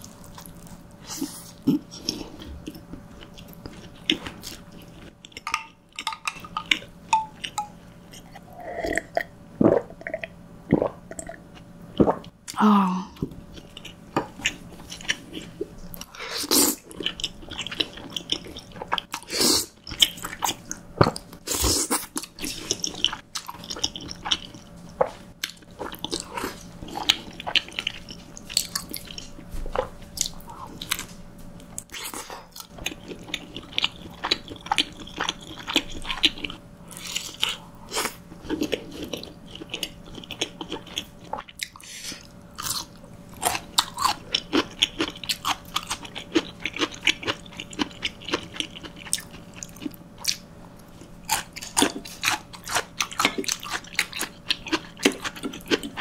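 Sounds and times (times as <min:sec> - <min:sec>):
chewing and wet mouth sounds: 0:00.0 - 0:12.6, 0:13.2 - 0:56.0
utensils clicking on bowl: 0:05.4 - 0:07.8.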